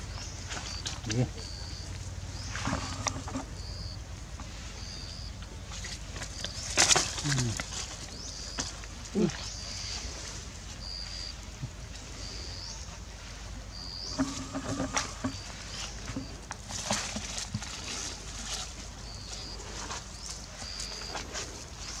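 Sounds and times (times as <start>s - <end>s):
monkeys rustling dry leaves: 5.6s - 13.0s, 14.0s - 22.0s.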